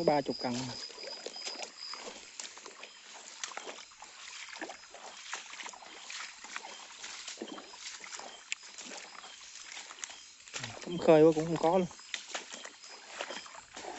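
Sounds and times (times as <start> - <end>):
footsteps wading through water: 0.0 - 13.9
water sloshing and splashing: 0.0 - 13.9.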